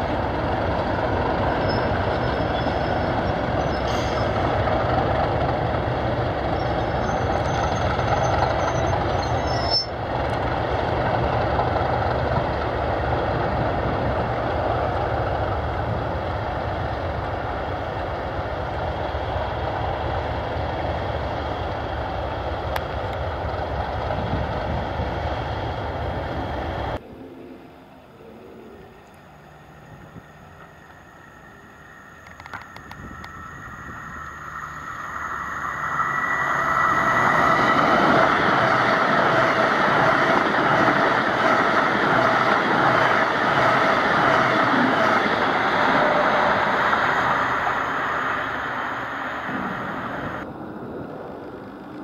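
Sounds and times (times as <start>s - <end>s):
diesel locomotive engines running: 0.0s - 27.0s, 27.8s - 52.0s
faint high squeal: 1.6s - 4.5s, 6.5s - 10.0s, 29.7s - 38.0s.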